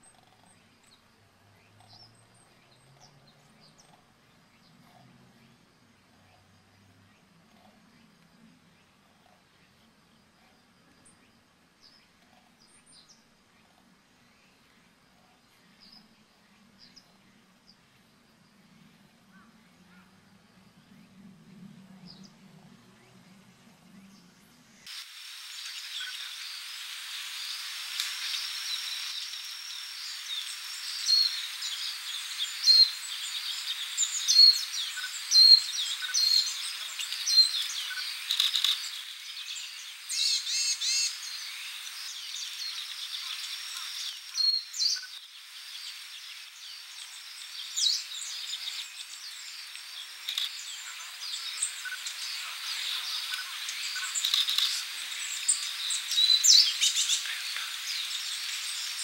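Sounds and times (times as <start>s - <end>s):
insects droning: 0.0s - 59.0s
songbirds chirping: 0.0s - 59.0s.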